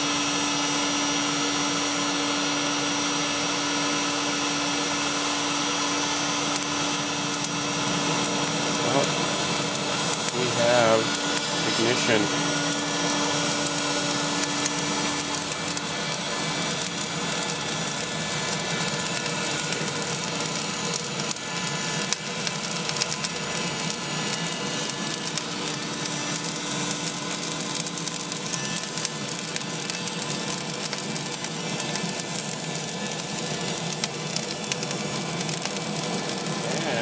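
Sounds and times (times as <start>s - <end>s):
faint motor hum: 0.0s - 37.0s
charcoal crackling: 0.3s - 37.0s
hiss of blowing hot air: 1.3s - 21.0s, 36.5s - 37.0s.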